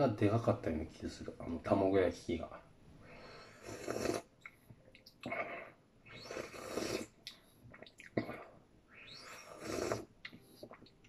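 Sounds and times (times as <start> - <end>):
person slurping soup: 3.5 - 4.3, 6.1 - 7.2, 9.0 - 10.8.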